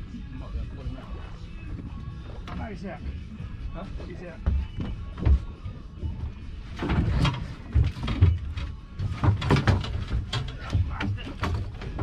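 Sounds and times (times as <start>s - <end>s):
knocks and thumps on boat: 4.4s - 5.6s, 6.8s - 12.0s.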